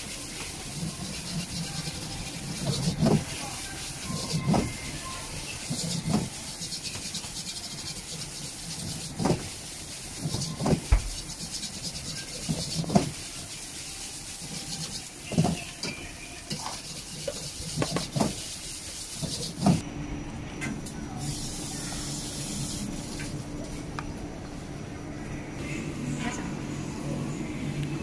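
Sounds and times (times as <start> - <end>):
rice sizzling in a wok: 0.0 - 19.8.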